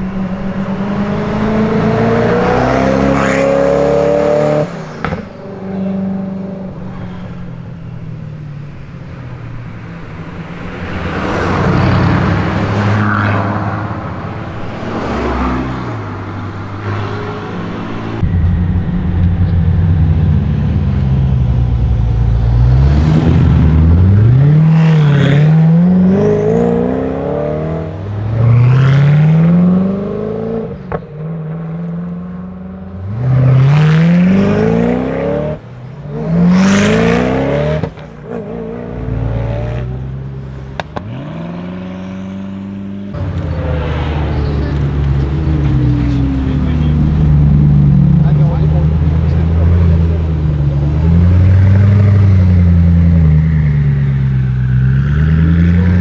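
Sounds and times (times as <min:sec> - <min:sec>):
cars passing: 0:00.0 - 0:56.0
loud engine revving: 0:00.5 - 0:05.2, 0:10.9 - 0:30.9, 0:31.9 - 0:40.2, 0:40.8 - 0:56.0
sports car pulling away: 0:13.9 - 0:56.0.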